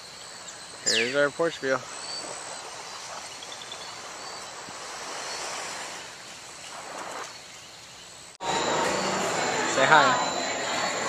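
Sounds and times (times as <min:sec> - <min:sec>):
breeze: 0:00.0 - 0:11.0
small waves washing onto beach: 0:01.4 - 0:07.5.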